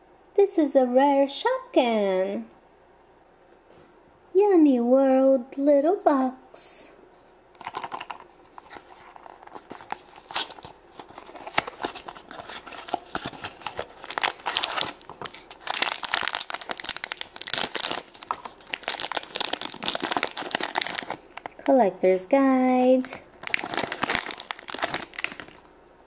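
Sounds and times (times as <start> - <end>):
foil bag crinkling and tearing: 7.6 - 21.6, 22.9 - 25.7.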